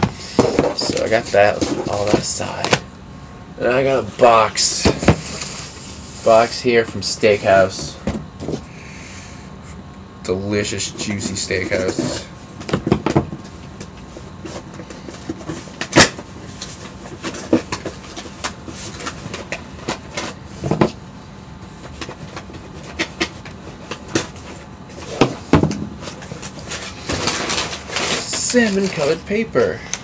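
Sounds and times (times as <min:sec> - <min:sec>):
cardboard box rustling and scraping: 0:00.2 - 0:02.7, 0:21.8 - 0:29.2.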